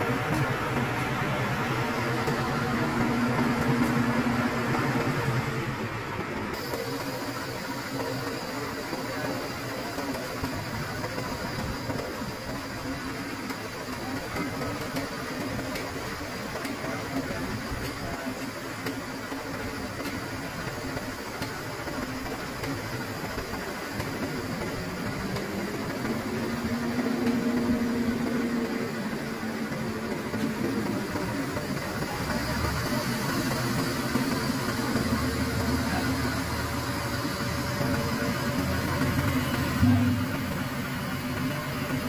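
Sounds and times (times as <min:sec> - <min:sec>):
truck engine running: 0:00.0 - 0:14.6, 0:23.0 - 0:42.0
tractor engine running: 0:18.6 - 0:42.0.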